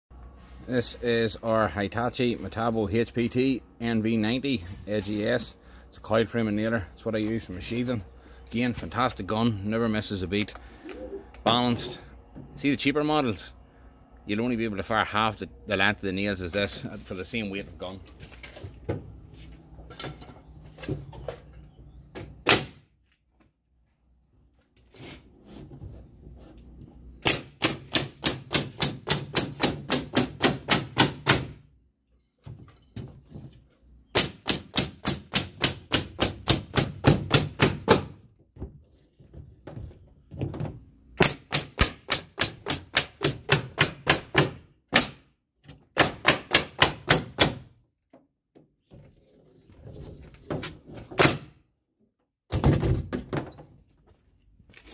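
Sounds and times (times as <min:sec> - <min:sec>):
nail gun firing: 0:22.4 - 0:22.8, 0:27.2 - 0:31.6, 0:34.1 - 0:38.1, 0:41.2 - 0:45.2, 0:46.0 - 0:47.6, 0:51.2 - 0:51.5.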